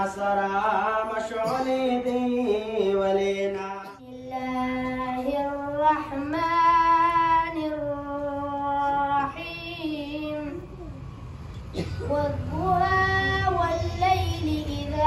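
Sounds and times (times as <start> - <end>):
boy singing unaccompanied: 3.8 - 10.9, 11.8 - 15.0.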